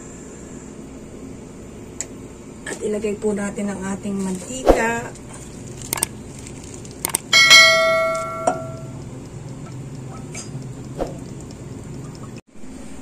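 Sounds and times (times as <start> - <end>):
quick clicks: 5.8 - 7.3
lower ding: 7.3 - 8.9.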